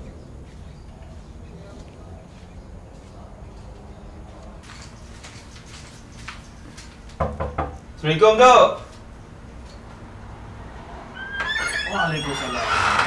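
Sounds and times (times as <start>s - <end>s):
knocks on a wooden door: 7.2s - 7.8s.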